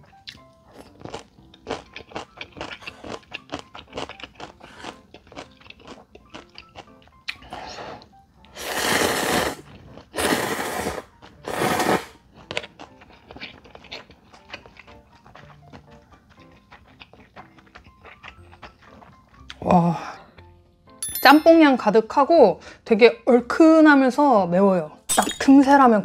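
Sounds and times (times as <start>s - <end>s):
person chewing noodles: 0.0s - 19.6s
noodle slurps: 8.6s - 12.2s.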